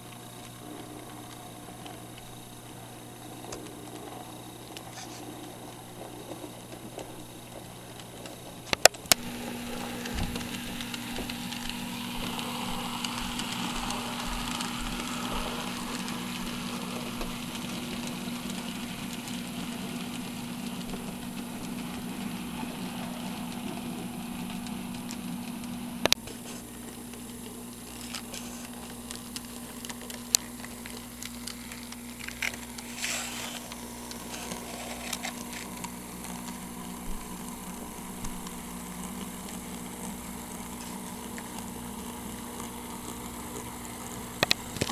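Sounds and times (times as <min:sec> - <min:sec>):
model train motor hum: 0:00.0 - 0:44.9
wheels rumbling on rails: 0:09.1 - 0:26.1.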